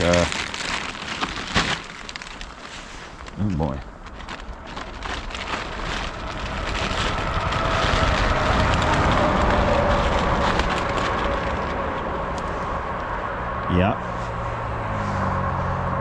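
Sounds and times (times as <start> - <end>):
vehicle passing by: 6.0 - 16.0.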